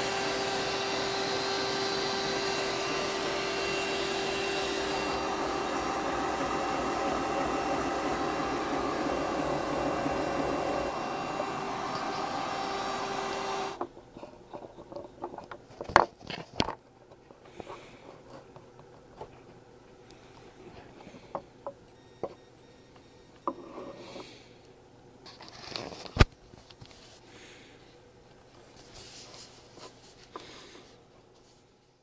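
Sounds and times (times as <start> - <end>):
vacuum cleaner whine: 0.0 - 13.8.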